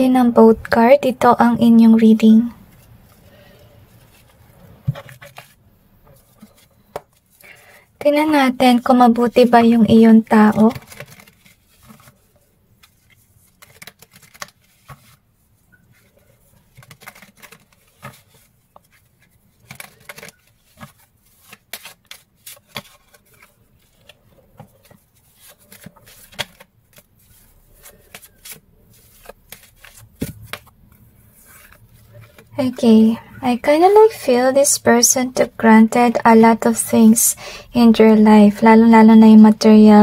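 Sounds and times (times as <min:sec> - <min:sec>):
cards being shuffled: 0:04.0 - 0:07.3, 0:10.3 - 0:15.2, 0:15.9 - 0:32.8.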